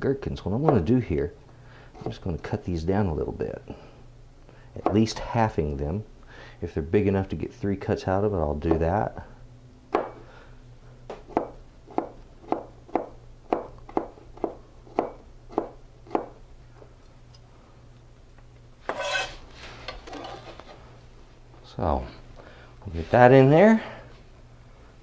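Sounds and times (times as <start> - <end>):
scrape on cutting board: 18.9 - 20.7.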